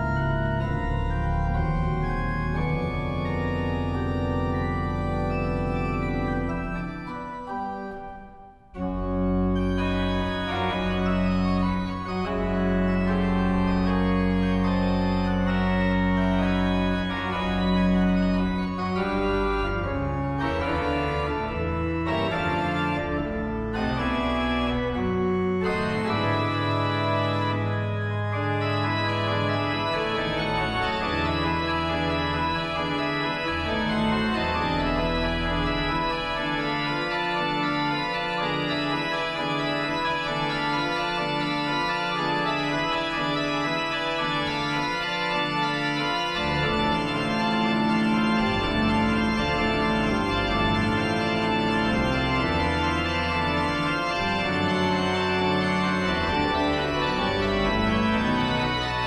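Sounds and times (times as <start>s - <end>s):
church organ chords: 0.0s - 59.0s.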